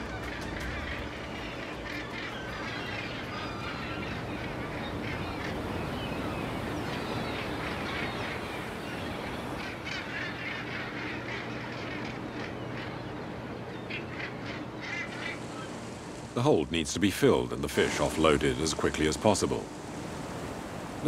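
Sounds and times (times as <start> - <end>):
boat engine humming: 0.0 - 21.0
gulls calling: 0.0 - 21.0.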